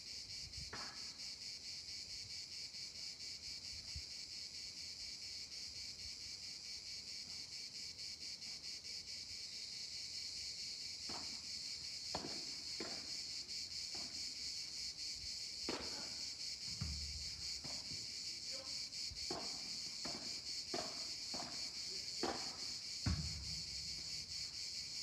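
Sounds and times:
insects buzzing: 0:00.0 - 0:25.0
ball knocking off rackets: 0:12.1 - 0:13.1, 0:15.7 - 0:18.0, 0:19.3 - 0:23.7.

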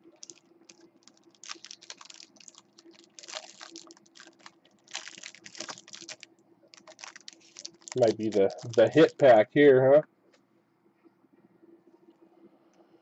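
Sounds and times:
trading cards clicking and rustling: 0:06.8 - 0:09.4.

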